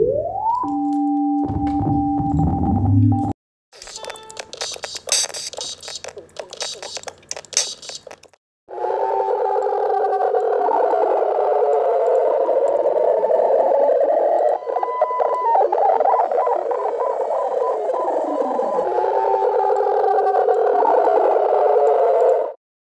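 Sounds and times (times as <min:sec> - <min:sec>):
cluster of clicks: 0:03.8 - 0:08.4
warbling electronic drone: 0:15.5 - 0:18.9.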